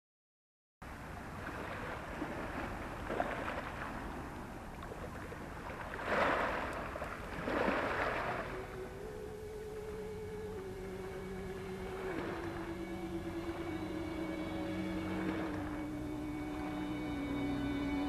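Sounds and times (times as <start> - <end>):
waves washing onto cobbles: 1.2 - 8.8
water crackling among stones: 1.2 - 9.2.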